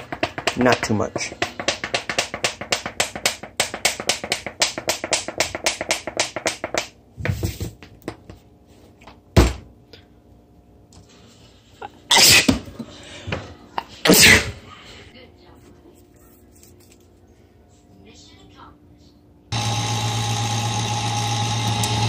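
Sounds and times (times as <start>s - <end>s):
person sneezing: 11.8s - 12.6s, 14.1s - 14.6s.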